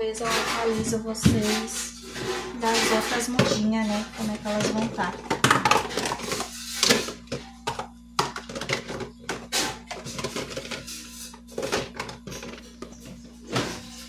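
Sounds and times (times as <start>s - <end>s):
steady low hum: 0.0s - 14.0s
plastic containers knocking together: 2.7s - 10.9s.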